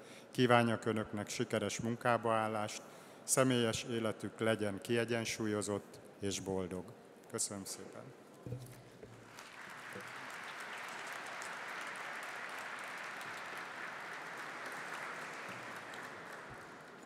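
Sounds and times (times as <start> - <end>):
audience applauding: 9.2 - 17.0.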